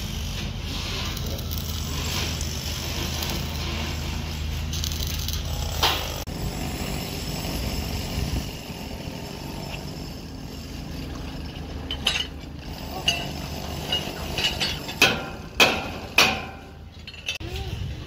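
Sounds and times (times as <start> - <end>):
metal-on-metal strikes ringing: 13.9 - 17.3.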